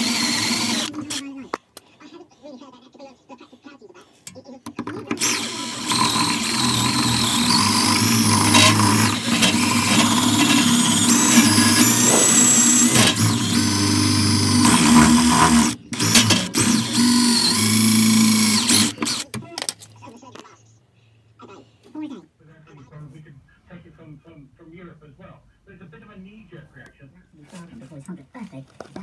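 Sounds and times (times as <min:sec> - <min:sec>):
power drill running: 0:00.0 - 0:01.3, 0:04.8 - 0:19.4.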